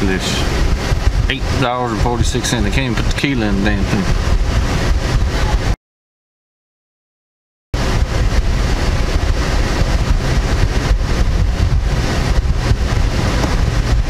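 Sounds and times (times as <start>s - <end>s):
car engine idling: 7.8s - 14.0s.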